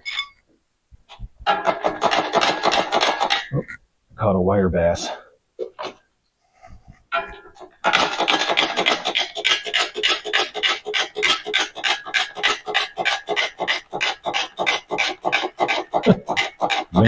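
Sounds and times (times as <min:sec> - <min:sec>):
chain hoist ratcheting: 0:07.9 - 0:17.0.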